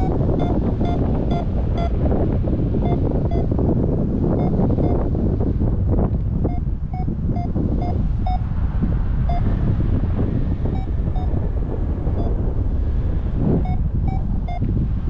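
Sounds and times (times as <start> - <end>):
variometer beeps: 0.0 - 5.2, 6.4 - 8.5, 9.2 - 9.6, 10.6 - 11.4, 12.1 - 12.4, 13.6 - 14.7
wind rushing over microphone: 0.0 - 15.0.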